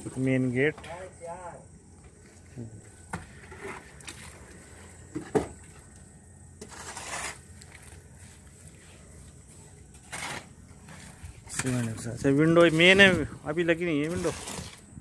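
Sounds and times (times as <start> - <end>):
hoe scraping wet mortar: 6.6 - 8.0, 9.9 - 15.0.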